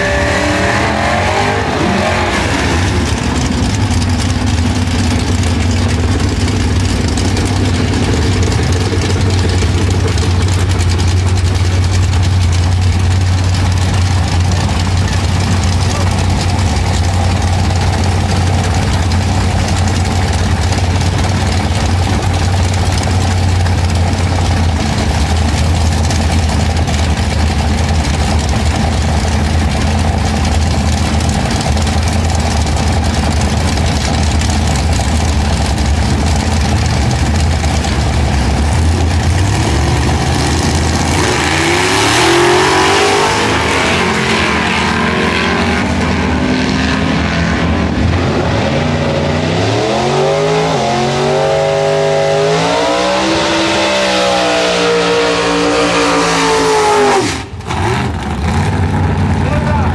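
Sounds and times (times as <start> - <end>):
engines idling: 0.0 - 59.9
engines revving hard: 0.0 - 59.9.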